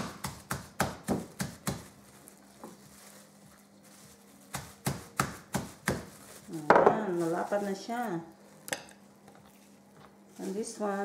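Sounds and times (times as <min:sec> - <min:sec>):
rolling pin pounding meat: 0:00.0 - 0:02.0, 0:04.5 - 0:07.0.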